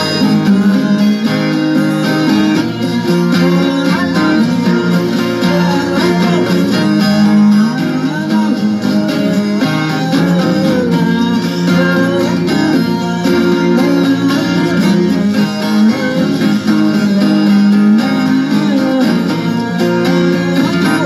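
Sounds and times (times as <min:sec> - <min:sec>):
guitar background music: 0:00.0 - 0:21.0.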